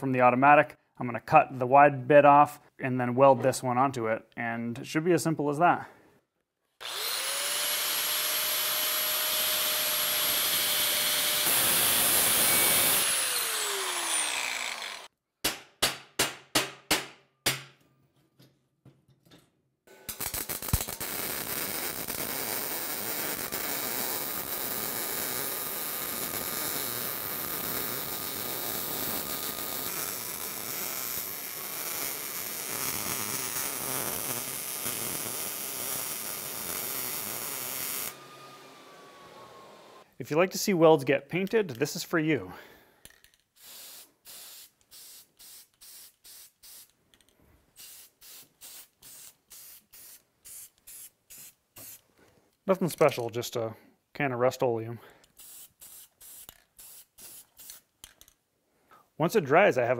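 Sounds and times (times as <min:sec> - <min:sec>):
angle grinder cutting steel: 0:06.8 - 0:15.1, 0:20.1 - 0:40.0
welder arc crackling: 0:20.1 - 0:38.2.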